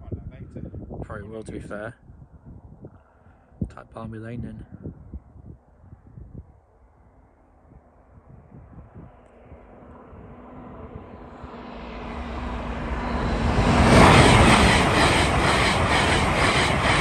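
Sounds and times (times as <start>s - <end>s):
high-speed train rushing past: 8.8s - 17.0s
wheels beating over rails: 12.1s - 17.0s.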